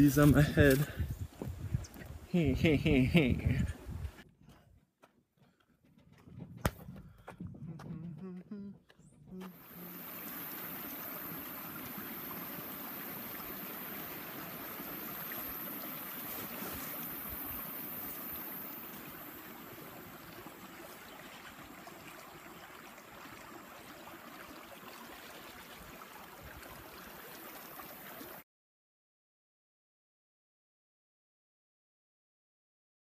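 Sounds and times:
stream running over stones: 0.0 - 3.5, 9.4 - 28.4.

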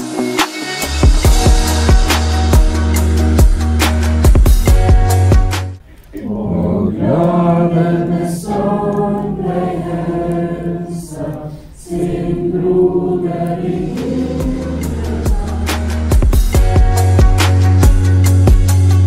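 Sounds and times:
group singing held notes: 6.1 - 16.8.

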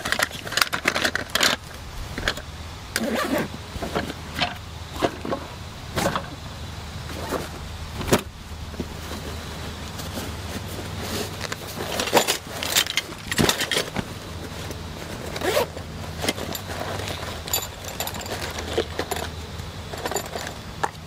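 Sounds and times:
metal tools clinking: 0.0 - 5.4, 10.6 - 21.0
steady low hum: 0.0 - 21.0.

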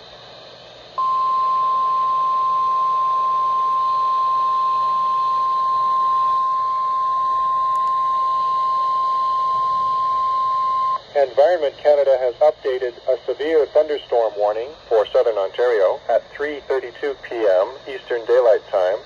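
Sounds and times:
weather radio alarm tone: 1.0 - 11.0.

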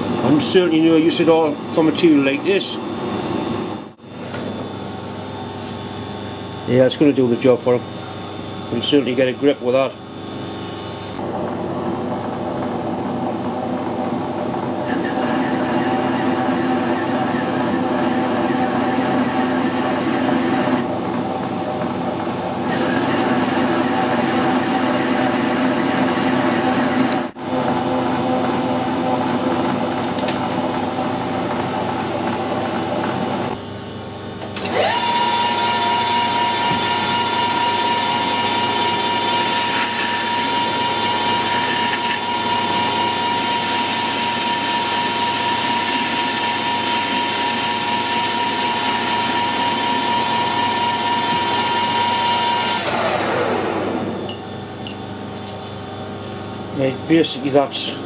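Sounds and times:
metal lathe motor whine and cutting: 12.0 - 33.6, 34.5 - 55.0.

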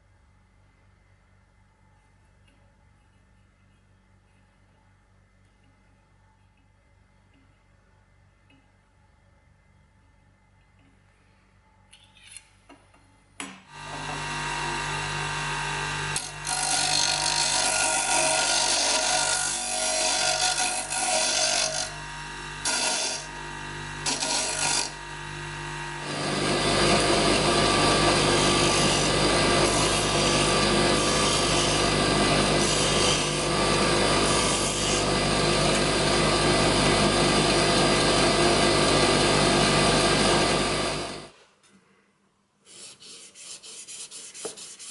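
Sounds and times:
bench grinder humming: 13.7 - 41.3.

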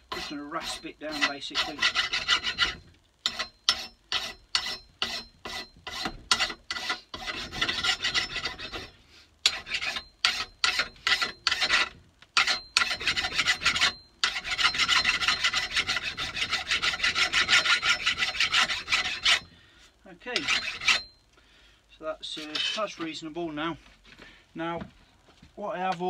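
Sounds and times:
rasp scraping wood: 0.0 - 19.5, 20.4 - 21.1.

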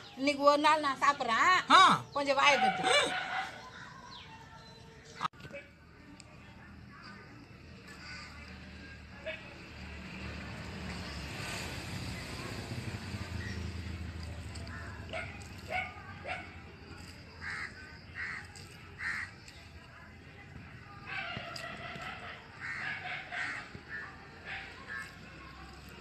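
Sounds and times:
crows cawing: 17.4 - 19.4, 22.6 - 24.1.

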